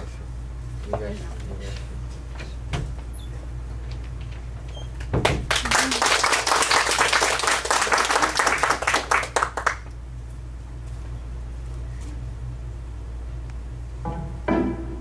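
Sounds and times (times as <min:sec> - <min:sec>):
audience applauding: 0:05.4 - 0:09.9.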